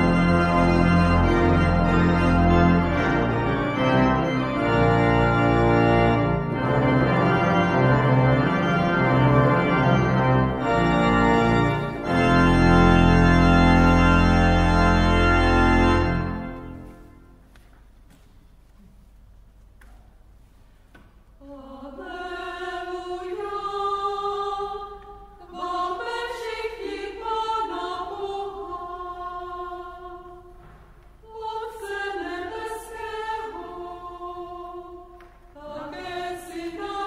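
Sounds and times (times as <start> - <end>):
pipe organ playing chords: 0.0 - 17.4.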